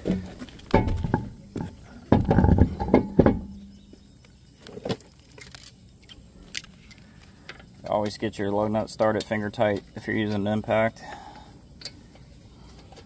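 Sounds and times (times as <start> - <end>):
wheel knocking against hub: 0.7 - 3.7.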